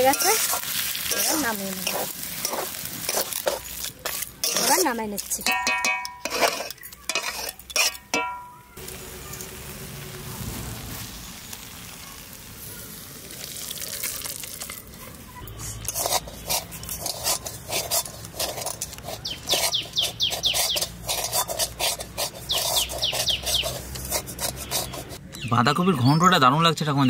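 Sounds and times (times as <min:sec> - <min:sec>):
metal spatula scraping a pan: 0:00.0 - 0:08.6, 0:14.6 - 0:25.2.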